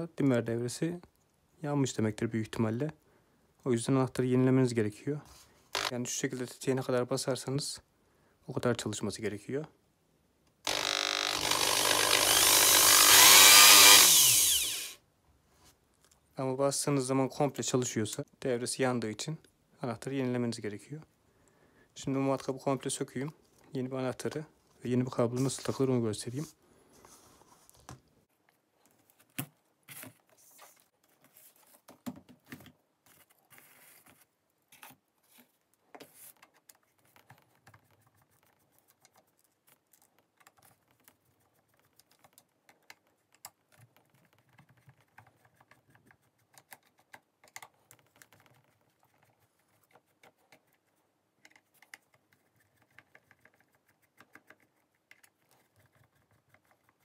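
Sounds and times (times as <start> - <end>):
screwdriver clicking on screws: 10.7 - 15.0.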